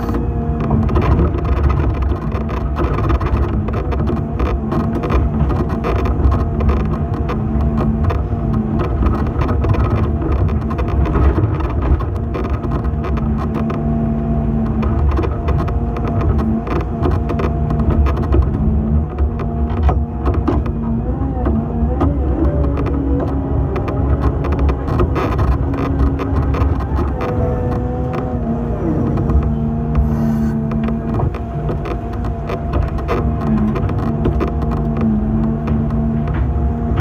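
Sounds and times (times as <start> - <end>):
excavator diesel engine running: 0.0 - 37.0
hydraulic whine: 20.0 - 34.2.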